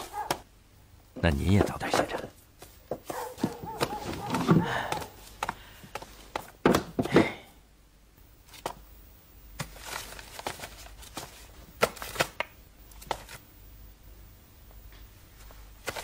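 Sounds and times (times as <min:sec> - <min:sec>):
soft rustling: 0:01.8 - 0:06.6.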